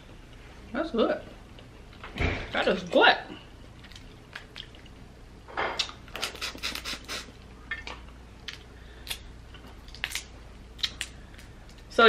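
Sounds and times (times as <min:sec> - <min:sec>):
crawfish shells cracking: 0:09.8 - 0:11.8.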